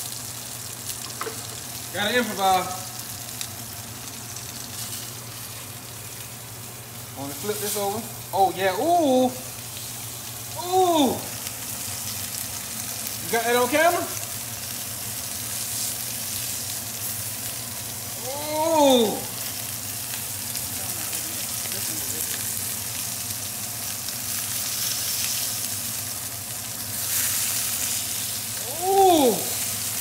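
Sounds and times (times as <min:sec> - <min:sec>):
steaks sizzling in oil: 0:00.0 - 0:30.0
person saying ooh: 0:10.5 - 0:11.4, 0:18.1 - 0:19.4, 0:28.5 - 0:29.7
spatula turning steak: 0:14.4 - 0:18.7, 0:21.4 - 0:30.0.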